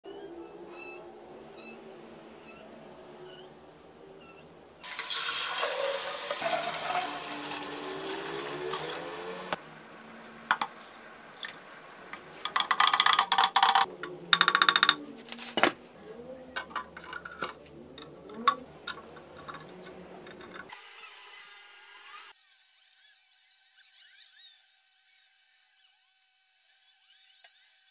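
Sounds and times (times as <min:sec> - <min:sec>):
water pouring into glass tank: 0:04.8 - 0:09.4, 0:11.3 - 0:11.7
clinks and taps in water: 0:16.6 - 0:20.7.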